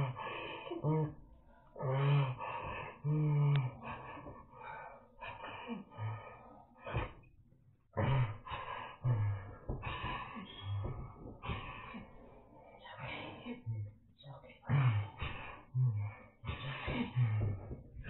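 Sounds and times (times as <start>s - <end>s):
man moaning: 0.0s - 1.2s, 1.8s - 4.1s, 14.6s - 17.6s
harsh gasping breaths: 0.0s - 7.4s, 8.0s - 18.0s.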